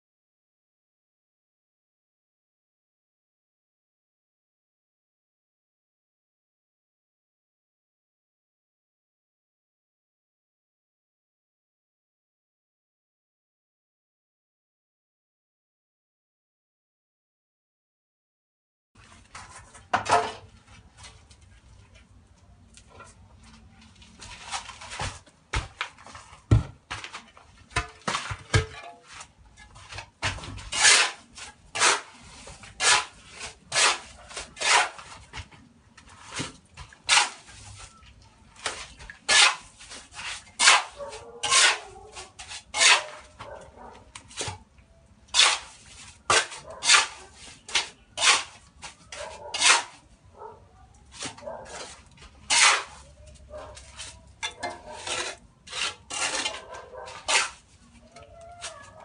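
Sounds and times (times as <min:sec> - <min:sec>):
dog barking: 0:40.9 - 0:42.3, 0:43.0 - 0:44.1, 0:46.6 - 0:47.4, 0:49.2 - 0:49.8, 0:50.4 - 0:50.8, 0:51.4 - 0:51.9, 0:53.5 - 0:53.8, 0:54.5 - 0:55.1, 0:56.5 - 0:57.3.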